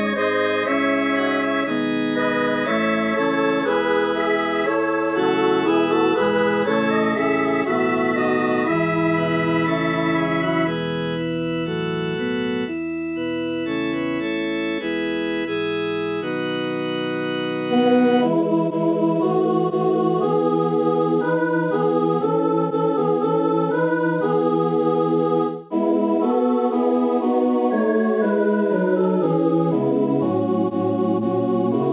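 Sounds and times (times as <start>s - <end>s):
synthesized choral chords: 0.0s - 31.9s.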